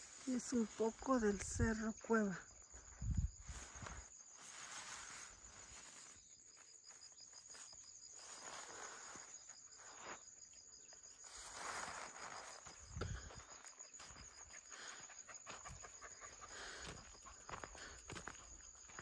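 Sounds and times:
insects trilling: 0:00.0 - 0:19.0
rustling noise: 0:03.4 - 0:06.2, 0:11.2 - 0:12.8.

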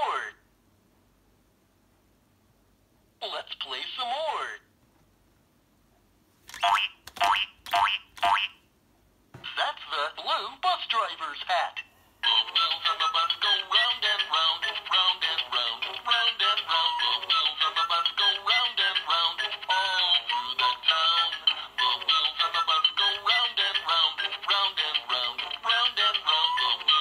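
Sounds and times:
tinny toy song with singing: 0:09.5 - 0:27.0.

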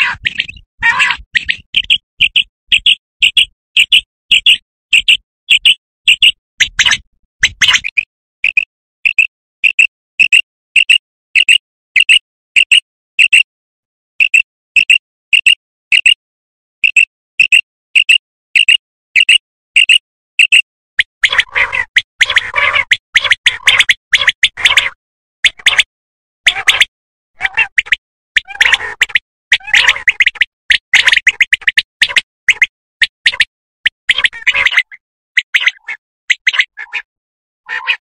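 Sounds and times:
quail calling: 0:00.0 - 0:08.0, 0:21.1 - 0:25.9, 0:26.5 - 0:37.1, 0:37.7 - 0:38.0.

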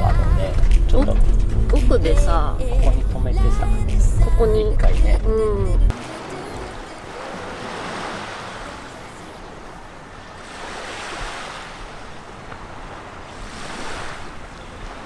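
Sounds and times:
small waves washing onto beach: 0:05.9 - 0:15.0.

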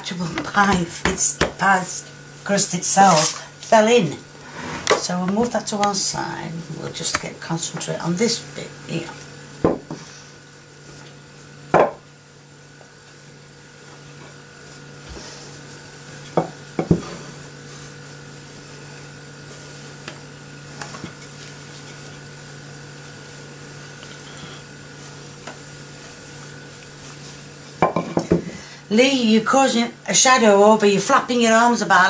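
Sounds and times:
thumps on wooden board: 0:09.6 - 0:10.0, 0:11.7 - 0:12.0
hands rubbing pastry: 0:17.4 - 0:27.8.

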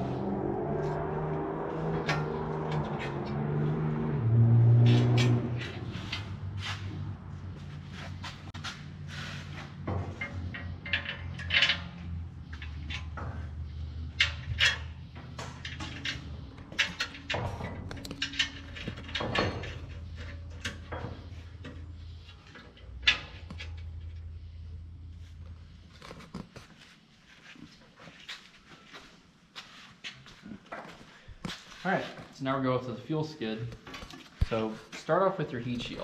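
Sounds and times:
steady low hum: 0:00.0 - 0:27.4
metallic clicks of tools and bolts: 0:09.9 - 0:24.3.

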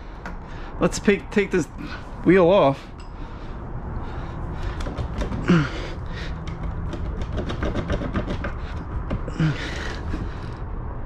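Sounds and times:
steering wheel clicks and knocks: 0:04.7 - 0:05.5.

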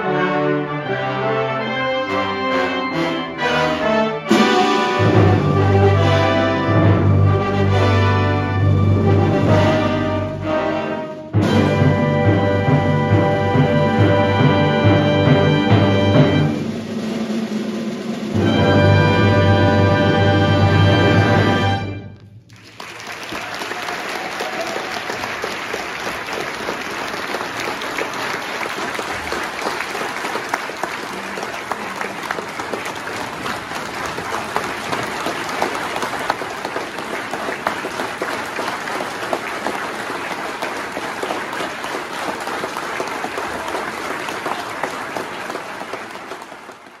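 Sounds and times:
audience applauding: 0:22.4 - 0:47.0.

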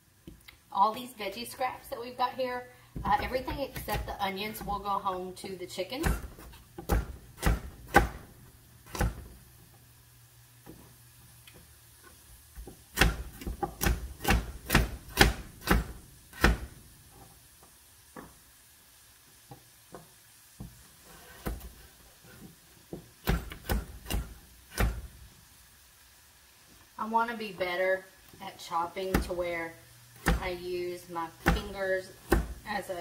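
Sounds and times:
knife chopping on plastic board: 0:06.0 - 0:08.3, 0:08.9 - 0:09.3, 0:12.9 - 0:16.8, 0:23.2 - 0:25.1, 0:30.2 - 0:30.5, 0:31.4 - 0:32.6.

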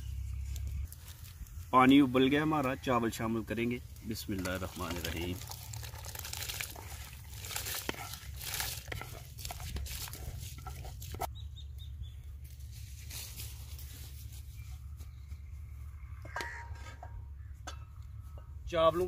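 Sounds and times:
rice pattering into boiling water: 0:03.5 - 0:11.3.

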